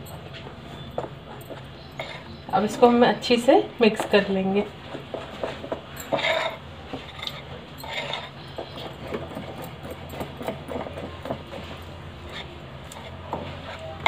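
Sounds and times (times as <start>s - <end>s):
spoon clinking and scraping glass bowl: 1.4s - 2.4s, 5.4s - 14.0s.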